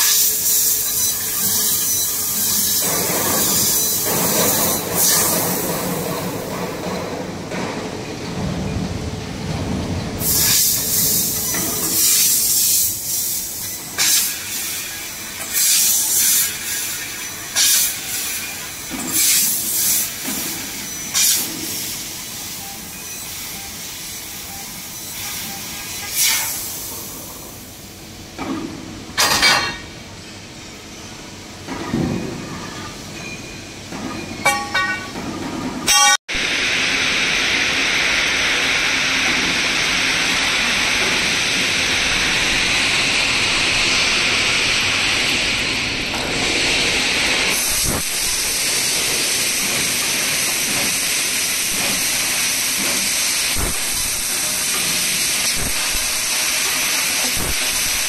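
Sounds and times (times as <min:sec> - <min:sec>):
laser cutter gas hissing: 0:00.0 - 0:06.6, 0:10.2 - 0:27.9, 0:35.9 - 0:58.0.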